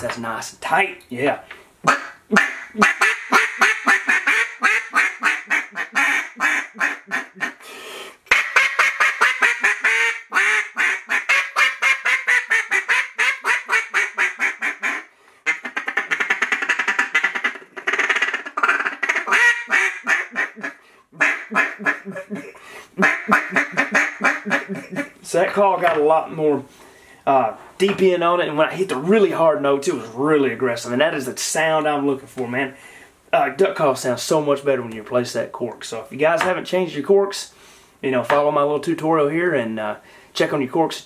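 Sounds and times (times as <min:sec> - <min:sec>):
duck call rapid quacks: 0:01.8 - 0:07.6, 0:08.3 - 0:25.2.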